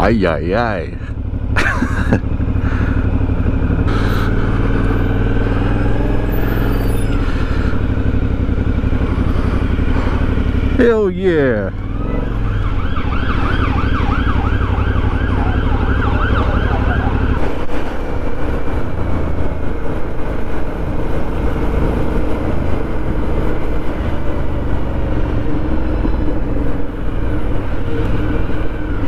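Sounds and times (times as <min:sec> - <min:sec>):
motorcycle engine: 0:00.0 - 0:29.0
road noise: 0:00.0 - 0:29.0
police siren yelping: 0:11.7 - 0:17.4.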